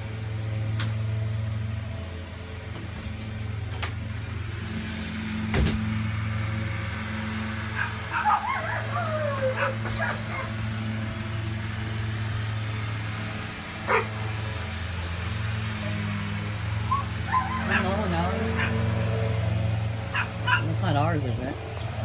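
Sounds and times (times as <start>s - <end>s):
dog yipping and whining: 7.8s - 10.5s, 16.9s - 18.0s, 20.2s - 20.6s.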